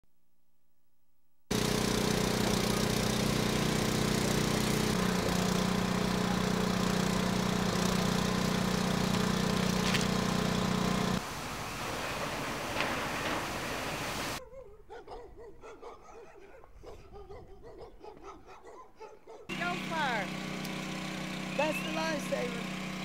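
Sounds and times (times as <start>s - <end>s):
engine running: 1.5s - 14.4s, 19.5s - 23.0s
quiet rushing noise: 11.2s - 14.4s.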